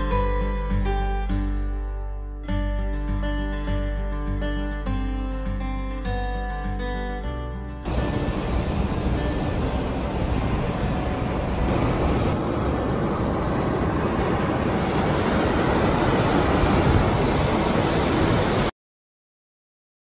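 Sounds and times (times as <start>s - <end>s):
ocean surf washing onto beach: 7.9s - 18.7s.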